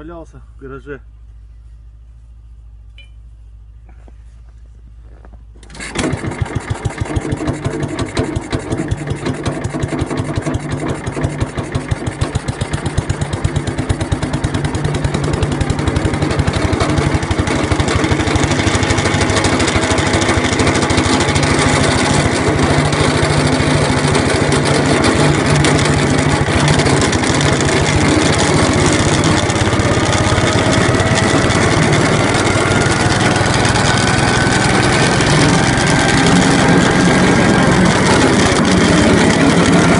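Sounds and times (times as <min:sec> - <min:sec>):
single-cylinder engine running: 0:05.0 - 0:39.9
thin rising whine: 0:13.7 - 0:39.9.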